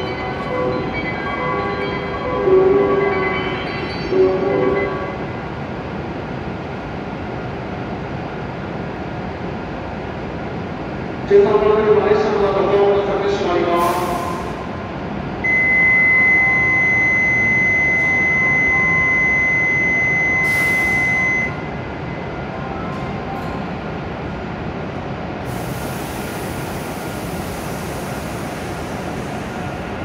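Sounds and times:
station and train rumble: 0.0s - 30.0s
high electronic warning tone: 15.4s - 21.7s.

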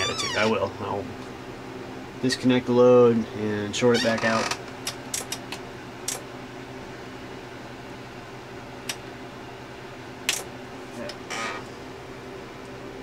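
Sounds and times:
steady low hum: 0.0s - 13.0s
sharp clip clicks: 10.3s - 10.5s.

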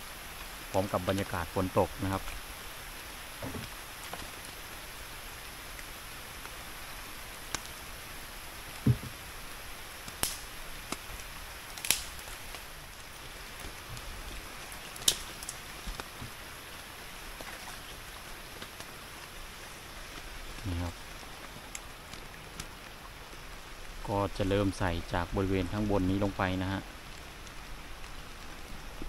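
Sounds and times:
steady rain falling: 0.0s - 29.0s
sharp taps of drops: 8.8s - 9.2s.

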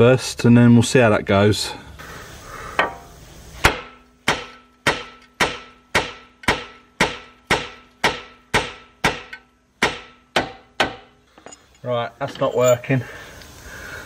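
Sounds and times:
hammer striking metal: 2.8s - 11.6s.

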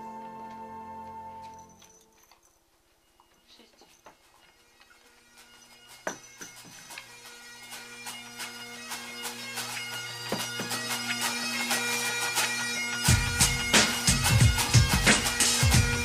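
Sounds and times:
bagpipe music: 0.0s - 1.9s, 3.6s - 16.0s
heavy low beats: 13.0s - 16.0s.

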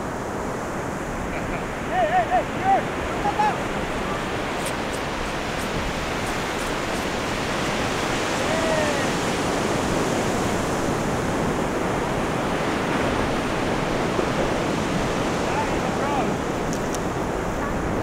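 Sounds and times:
ocean surf breaking: 0.0s - 18.0s.

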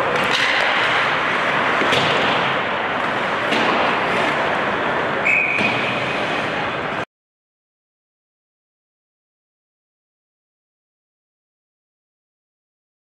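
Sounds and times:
hockey sticks and puck clacking: 0.0s - 7.0s
referee's whistle blast: 5.2s - 5.8s.

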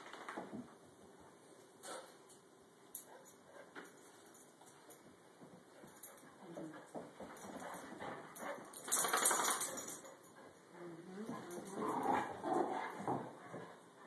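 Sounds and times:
dogs play-growling and whining: 5.9s - 13.8s.

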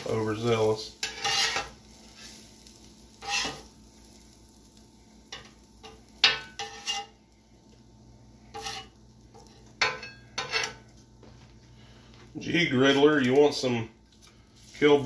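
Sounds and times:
faint sizzle: 0.0s - 15.0s
metal spatula scraping griddle: 1.0s - 3.7s, 5.3s - 7.2s, 8.5s - 10.9s.

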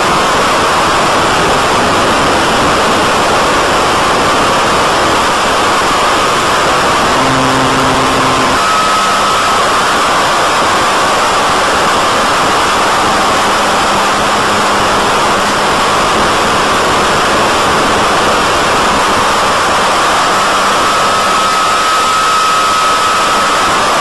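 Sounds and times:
faint steady whine: 6.8s - 24.0s.

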